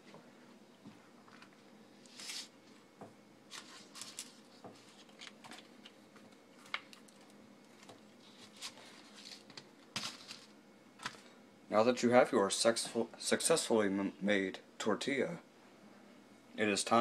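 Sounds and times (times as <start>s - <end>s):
tortilla rustling on paper plate: 3.5s - 5.7s, 6.6s - 10.6s.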